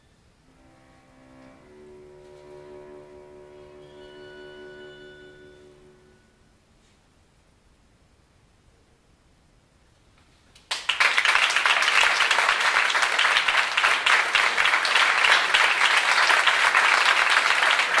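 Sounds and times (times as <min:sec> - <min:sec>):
audience applause: 0:10.7 - 0:18.0.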